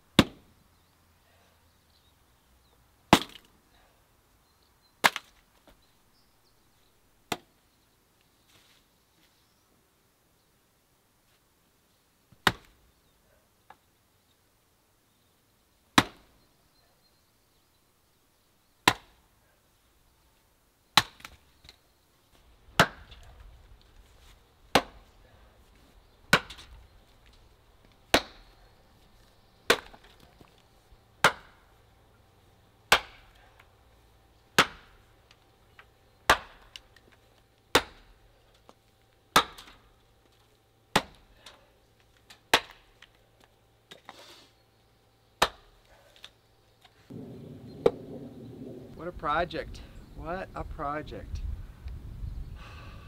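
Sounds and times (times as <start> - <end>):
axe chopping into log: 0.2 - 0.4, 3.1 - 3.5, 5.0 - 5.3, 7.3 - 7.5, 12.4 - 12.8, 16.0 - 16.3, 18.8 - 19.2, 21.0 - 21.4, 22.8 - 23.2, 24.7 - 25.1, 26.3 - 26.7, 28.1 - 28.5, 29.7 - 30.2, 31.2 - 31.6, 32.9 - 33.4, 34.6 - 35.0, 36.3 - 36.8, 37.7 - 38.1, 39.3 - 39.8, 40.9 - 41.3, 42.5 - 42.9, 45.4 - 45.8.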